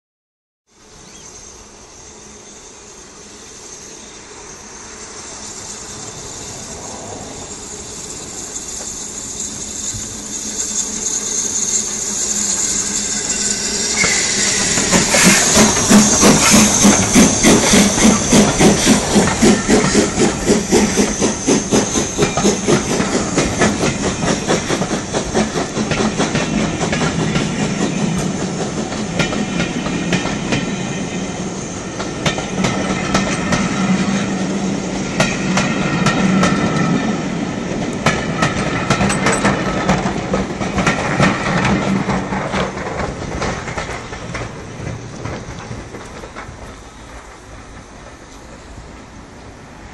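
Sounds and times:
steam locomotive passing: 0.7 - 49.9
hiss of steam: 0.8 - 49.9
wheels clicking over rail joints: 6.0 - 30.7, 32.0 - 49.1.

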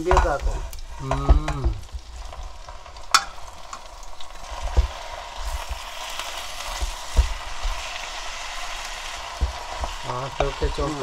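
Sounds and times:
wooden spoon knocking a pot: 0.0 - 2.0, 4.5 - 5.9, 6.6 - 8.2, 9.0 - 11.0
food sizzling in a pot: 0.0 - 11.0.

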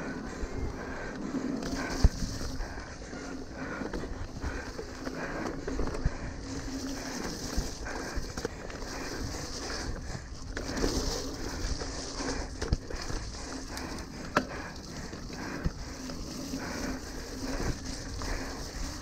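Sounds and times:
bike rattling over bumps: 0.0 - 19.0
bike tyres on wet trail: 0.0 - 19.0.

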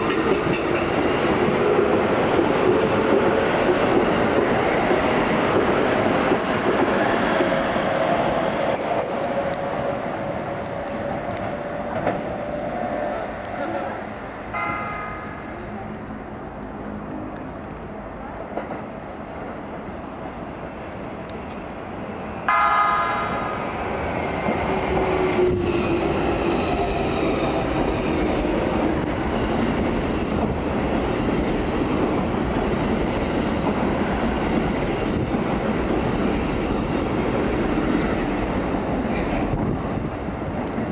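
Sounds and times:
train rumbling on rails: 0.0 - 40.9
wheel and rail noise: 0.0 - 40.9
train horn tone: 22.5 - 23.6.

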